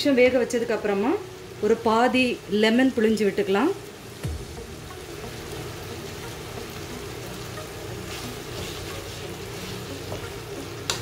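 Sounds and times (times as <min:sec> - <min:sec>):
meat sizzling in a pan: 0:00.1 - 0:11.0
spoon stirring in a pan: 0:07.6 - 0:11.0.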